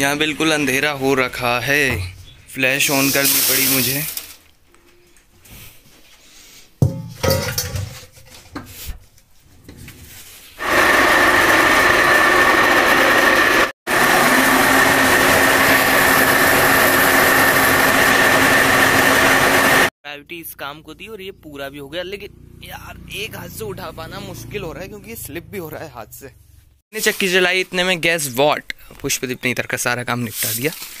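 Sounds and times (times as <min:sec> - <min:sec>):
flour mill grinding hum: 0:10.6 - 0:19.9.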